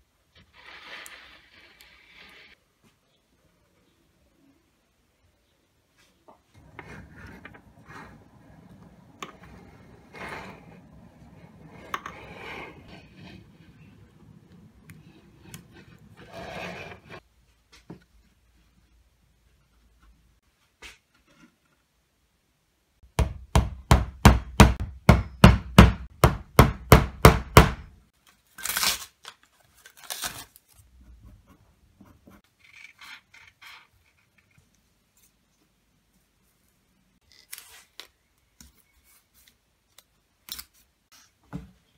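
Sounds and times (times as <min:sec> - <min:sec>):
paper tearing: 0:28.6 - 0:30.8.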